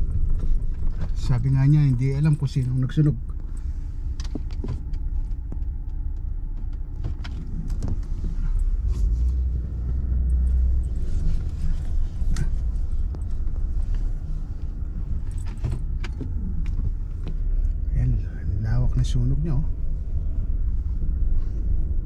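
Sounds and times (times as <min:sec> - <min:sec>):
cab clicks and rattles: 0:00.0 - 0:08.6
engine and road rumble: 0:00.0 - 0:22.0.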